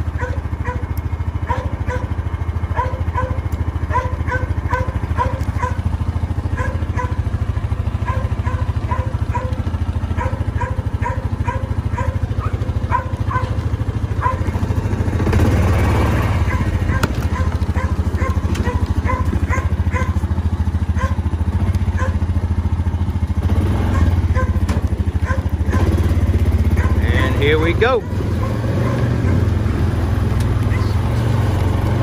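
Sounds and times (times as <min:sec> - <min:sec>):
quad bike engine idling: 0:00.0 - 0:32.0
dog yapping: 0:00.2 - 0:02.1, 0:02.7 - 0:05.9, 0:06.5 - 0:07.2, 0:08.0 - 0:14.6, 0:16.4 - 0:20.2, 0:21.0 - 0:21.3, 0:21.9 - 0:22.2, 0:23.9 - 0:26.0, 0:26.7 - 0:27.1, 0:28.0 - 0:29.5, 0:30.6 - 0:31.0.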